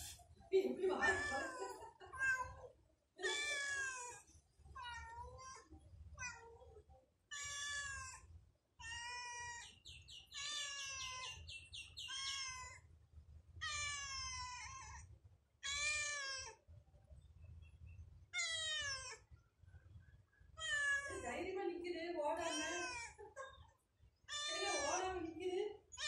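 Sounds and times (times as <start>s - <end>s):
cat meowing: 1.0s - 4.2s, 7.3s - 8.2s, 8.8s - 9.6s, 10.3s - 11.4s, 12.0s - 12.8s, 13.6s - 15.0s, 15.6s - 16.6s, 18.4s - 19.3s, 20.6s - 21.2s, 22.4s - 23.2s, 24.3s - 25.1s.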